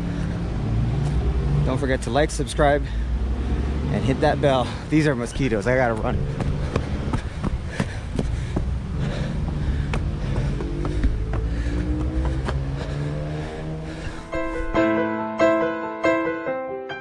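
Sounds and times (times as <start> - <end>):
piano-like music: 14.3 - 17.0.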